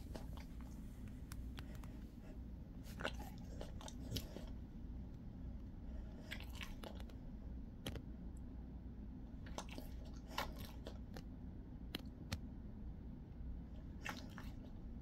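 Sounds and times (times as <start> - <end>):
dog chewing with crunches: 0.0 - 4.7, 5.9 - 7.2, 9.5 - 11.2.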